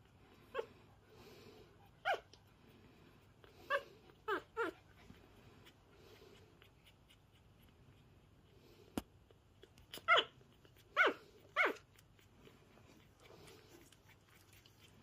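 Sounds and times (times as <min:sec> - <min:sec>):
puppies squeaking and whimpering: 0:03.4 - 0:07.9, 0:09.8 - 0:15.0.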